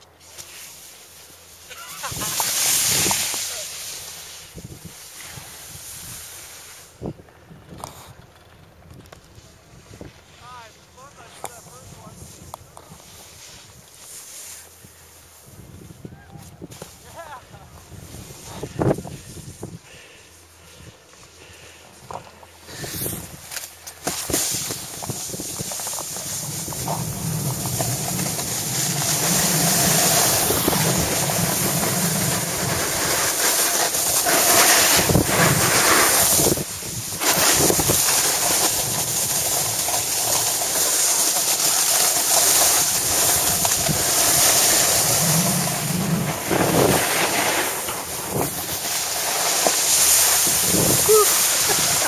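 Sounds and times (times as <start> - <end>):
snowboard sliding over snow: 0.0 - 52.0
wind on microphone: 43.1 - 47.3, 50.4 - 52.0.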